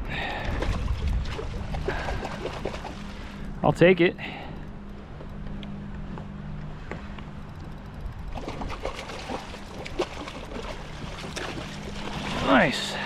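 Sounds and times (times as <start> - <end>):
fish thrashing and splashing: 0.4 - 3.4, 8.2 - 12.8
trickling water: 7.7 - 13.0.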